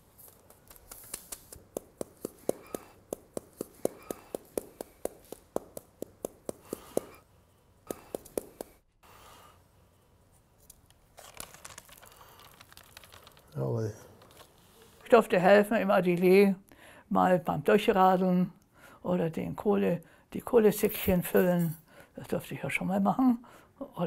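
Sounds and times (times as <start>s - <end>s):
paper rustle: 0.0s - 1.7s, 10.6s - 15.0s
cloth pouch patting paper: 0.0s - 7.2s, 7.9s - 8.8s, 11.2s - 13.6s.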